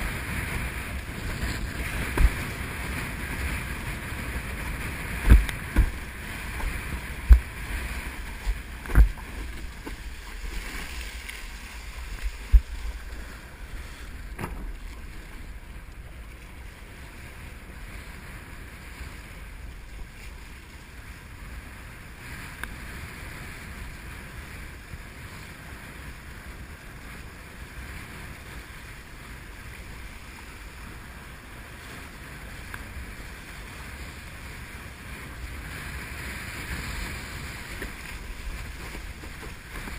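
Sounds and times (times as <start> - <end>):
water rushing past board: 0.0 - 17.6, 33.1 - 39.9
wind buffeting microphone: 0.0 - 26.8, 27.4 - 39.9
sharp thumps: 5.2 - 7.5, 14.3 - 14.8.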